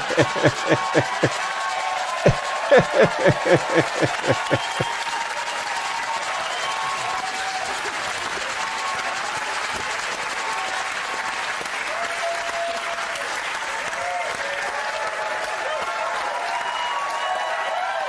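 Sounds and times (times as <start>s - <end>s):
man laughing: 0.0s - 1.4s, 2.2s - 4.9s
audience applauding: 0.0s - 18.0s.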